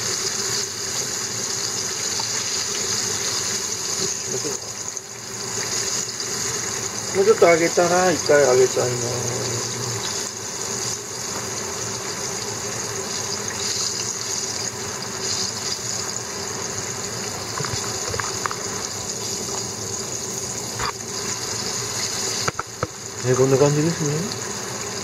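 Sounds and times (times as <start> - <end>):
fish deep-frying in hot oil: 0.0 - 25.0
small oil pops: 17.5 - 18.6, 22.4 - 23.0.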